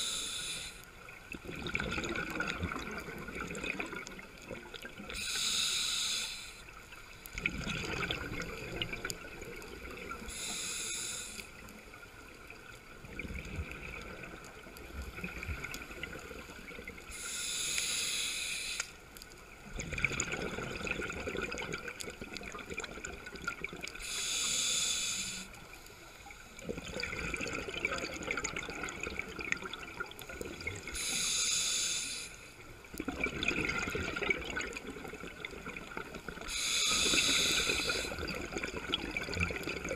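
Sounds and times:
regulator hissing inhale: 0.0s - 0.9s, 5.1s - 6.8s, 10.2s - 11.7s, 17.1s - 19.0s, 24.0s - 26.6s, 30.9s - 32.6s, 36.4s - 38.2s
exhaust bubbles bubbling: 1.4s - 5.0s, 7.4s - 10.2s, 19.7s - 23.8s, 26.6s - 30.8s, 33.0s - 36.4s.

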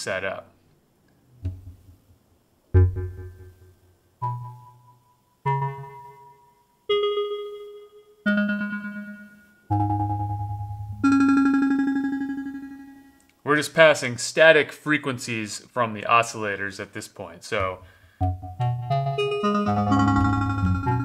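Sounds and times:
plucked synthesizer notes: 1.4s - 2.0s, 2.8s - 6.4s, 8.3s - 13.1s, 17.6s - 21.0s.

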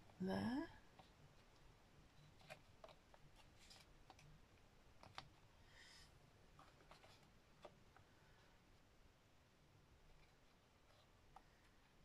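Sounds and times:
paper rustle: 1.0s - 4.3s, 6.6s - 7.8s.

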